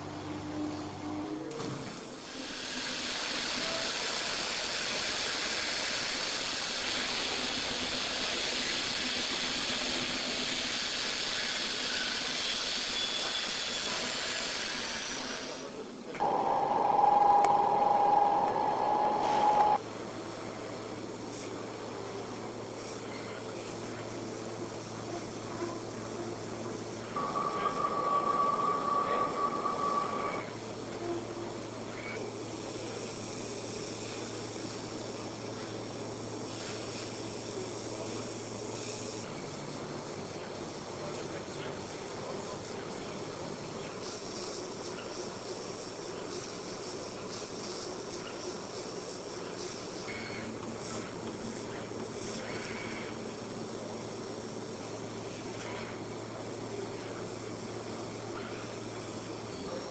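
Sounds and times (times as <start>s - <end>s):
laser cutter hissing: 2.1s - 19.8s, 22.7s - 59.9s
steady machine hum: 16.2s - 20.7s, 24.4s - 36.4s.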